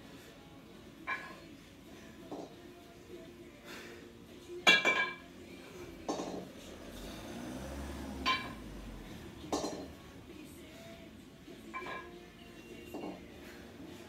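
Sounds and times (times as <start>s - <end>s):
kettlebells clinking together: 1.0s - 1.4s, 4.6s - 5.3s, 6.1s - 6.5s, 8.2s - 8.6s, 9.5s - 9.9s, 11.7s - 12.2s, 12.9s - 13.2s.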